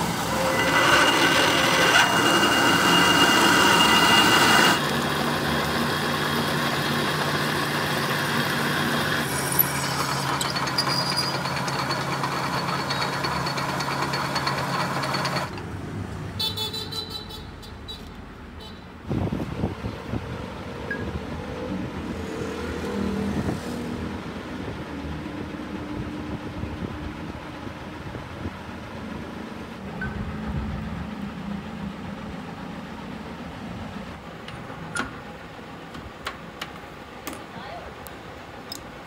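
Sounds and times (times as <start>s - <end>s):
road traffic drone: 0.0s - 39.0s.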